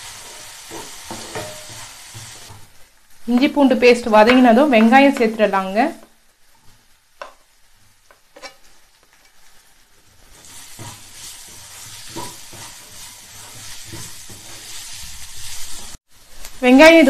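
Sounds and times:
spatula scraping pan: 0.0s - 2.7s, 8.3s - 8.7s, 10.2s - 16.0s
onions sizzling in oil: 0.0s - 17.0s.

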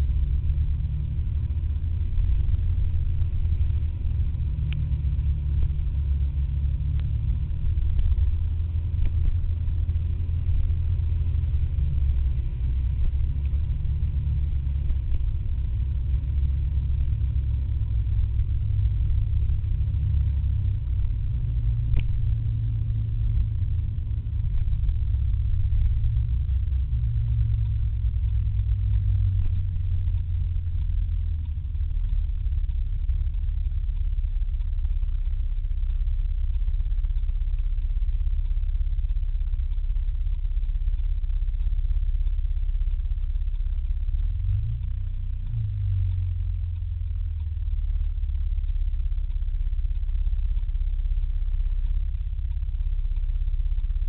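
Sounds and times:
scooter engine drone: 0.0s - 36.4s.

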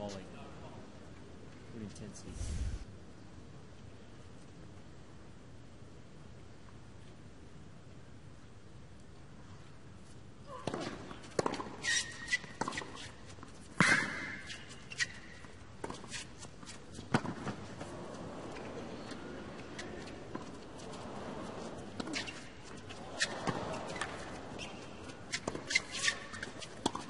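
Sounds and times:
low arena background noise: 0.0s - 27.0s
sneaker squeak: 11.5s - 13.2s, 13.8s - 16.3s, 18.2s - 27.0s.

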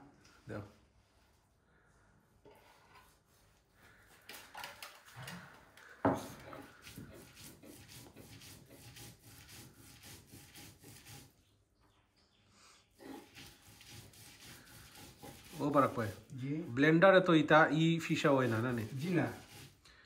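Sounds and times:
stone grinding rasping rub: 6.4s - 11.4s, 13.0s - 16.3s, 18.2s - 19.8s.

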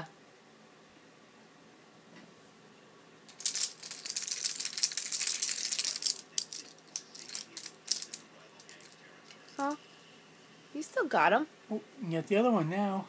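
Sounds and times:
plastic toy keys rattling: 3.3s - 9.8s.

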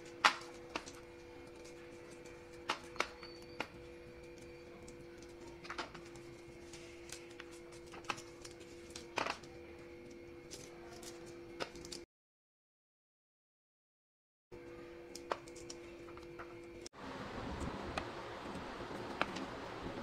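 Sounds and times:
steady low hum: 14.6s - 20.0s
pod shells cracking: 15.1s - 16.3s.

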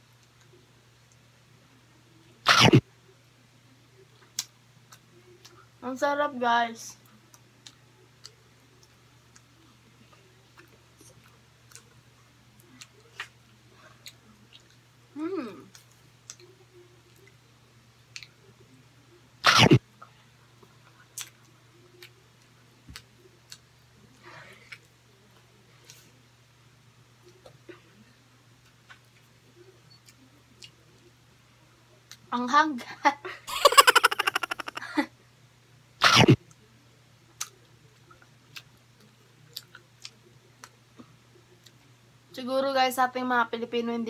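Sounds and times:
faint eating clicks: 15.6s - 17.4s, 29.9s - 30.8s, 37.4s - 41.8s.

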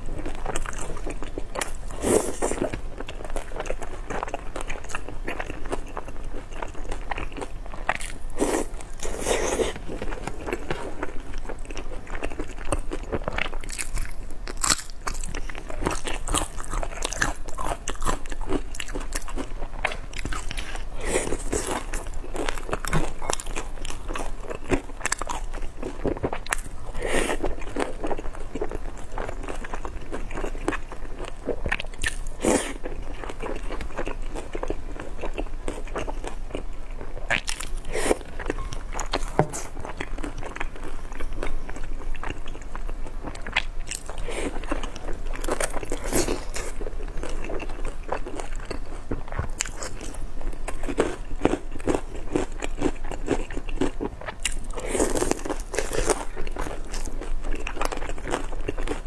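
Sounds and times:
wet crackly chewing: 0.0s - 59.0s.

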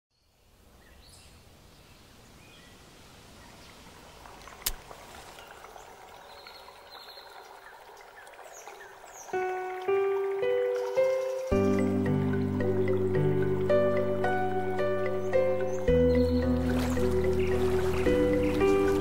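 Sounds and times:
bird chirps: 14.9s - 19.0s.

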